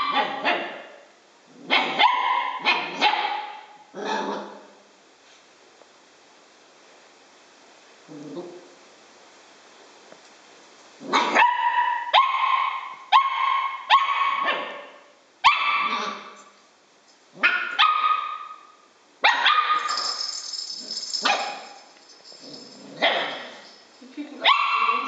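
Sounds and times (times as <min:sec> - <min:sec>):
puppy barking: 0:00.0 - 0:01.0, 0:01.6 - 0:04.6, 0:11.1 - 0:16.3, 0:17.4 - 0:20.0, 0:21.2 - 0:21.8, 0:23.0 - 0:23.6, 0:24.4 - 0:25.0.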